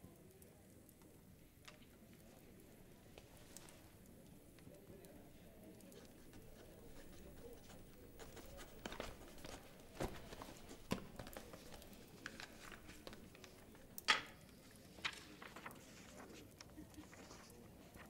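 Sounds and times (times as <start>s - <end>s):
papers and pen handled: 5.9s - 18.0s
sharp paper rustle: 6.0s - 13.7s, 14.6s - 18.0s.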